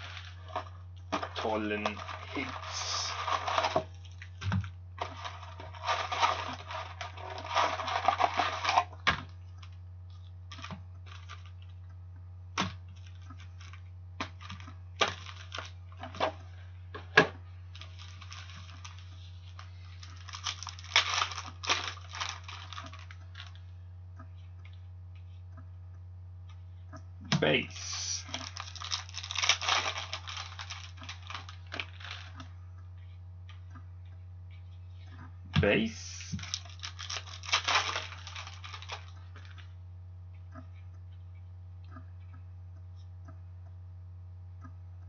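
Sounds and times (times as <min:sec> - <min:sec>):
cardboard and wrappers rustling: 0:00.0 - 0:11.7, 0:12.9 - 0:13.8, 0:14.4 - 0:23.6, 0:27.4 - 0:32.6, 0:34.9 - 0:39.7
low hum: 0:00.0 - 0:45.0.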